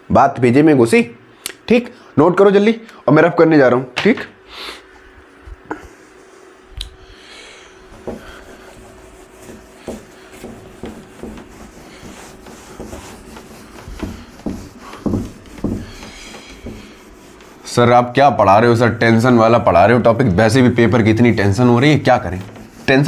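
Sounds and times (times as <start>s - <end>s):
duster rubbing whiteboard: 7.7s - 23.0s
soft knocks: 7.9s - 8.5s, 9.4s - 17.1s.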